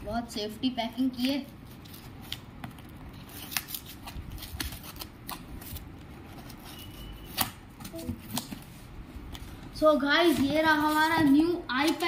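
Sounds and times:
cardboard rustling: 0:01.8 - 0:12.0
scissors cutting cardboard: 0:03.1 - 0:08.6.

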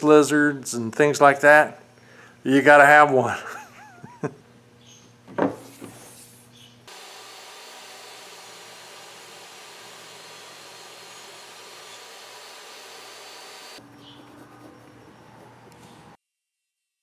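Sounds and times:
table saw ripping wood: 0:06.9 - 0:13.8.

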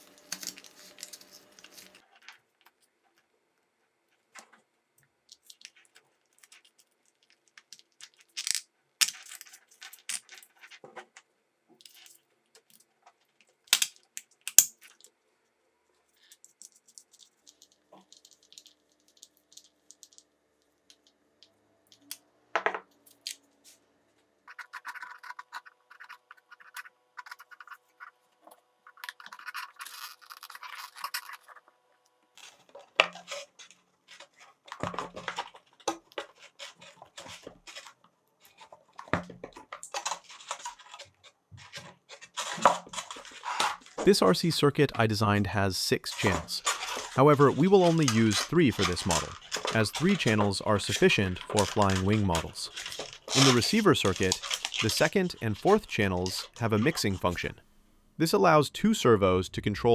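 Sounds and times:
tools clicking and tapping: 0:46.1 - 0:57.2.

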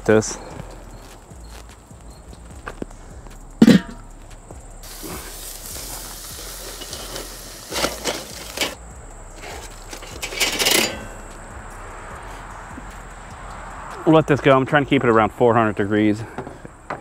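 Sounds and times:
metal spatulas scraping grill grate: 0:03.6 - 0:04.0, 0:04.9 - 0:08.8, 0:09.4 - 0:11.2
food sizzling: 0:04.8 - 0:08.8.

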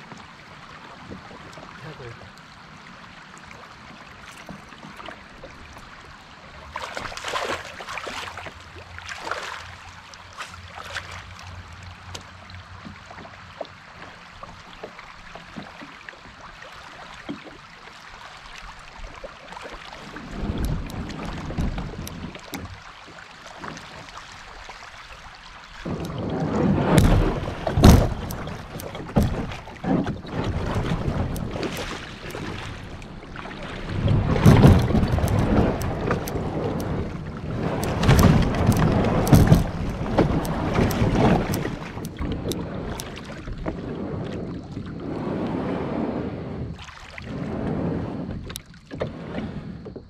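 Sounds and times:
water sloshing around kayak: 0:00.0 - 0:50.0
wind noise on microphone: 0:20.1 - 0:22.4, 0:25.8 - 0:50.0
knocks against kayak hull: 0:26.8 - 0:30.2, 0:37.8 - 0:41.8.

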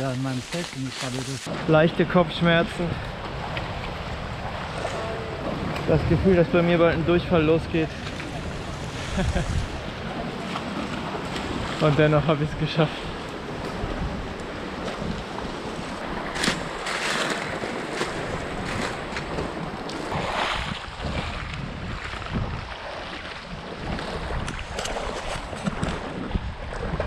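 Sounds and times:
footsteps wading through stream: 0:00.0 - 0:01.6, 0:08.0 - 0:27.0
water splashing: 0:00.0 - 0:27.0
wind buffeting microphone: 0:00.0 - 0:27.0.

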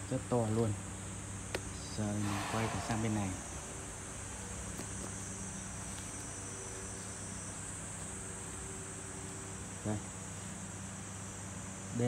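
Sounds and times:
high-pitched hiss: 0:00.9 - 0:12.0
low hum: 0:01.9 - 0:06.3.

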